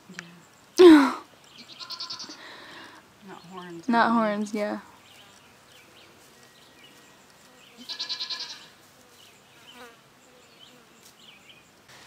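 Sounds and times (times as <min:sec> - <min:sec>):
goat bleating: 0:01.6 - 0:02.4, 0:07.8 - 0:08.8.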